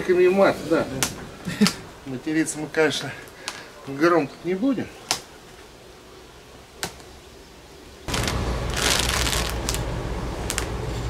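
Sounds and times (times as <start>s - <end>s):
steady low rumble: 0.0s - 2.8s, 8.1s - 11.0s
fabric cover rustling: 8.1s - 9.8s.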